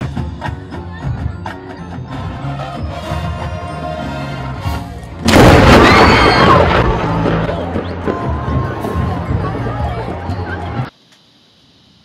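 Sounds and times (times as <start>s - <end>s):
marching band music: 0.0s - 5.8s
loud thunder crack: 5.2s - 8.8s.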